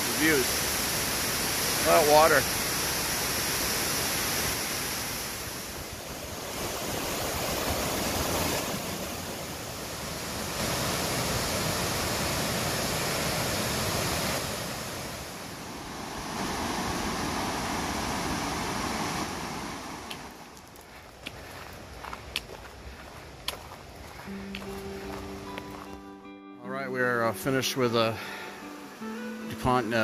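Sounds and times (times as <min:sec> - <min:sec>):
waterfall roaring: 0:00.0 - 0:20.4.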